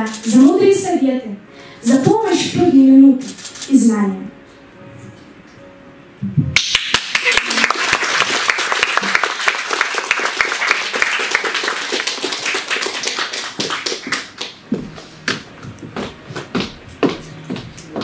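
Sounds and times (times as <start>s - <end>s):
audience clapping: 6.6s - 15.5s.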